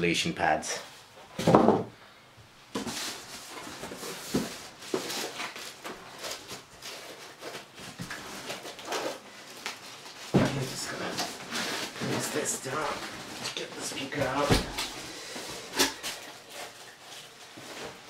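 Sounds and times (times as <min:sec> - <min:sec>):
cardboard boxes scraping and rustling: 0:02.7 - 0:09.2, 0:10.0 - 0:18.0.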